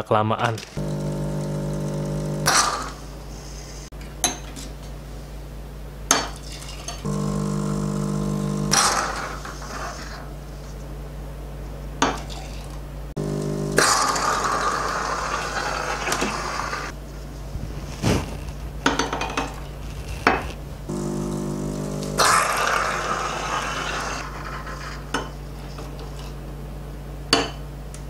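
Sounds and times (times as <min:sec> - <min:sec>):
espresso machine pump running: 0:00.8 - 0:03.0, 0:07.0 - 0:10.0, 0:13.2 - 0:16.9, 0:19.8 - 0:25.0.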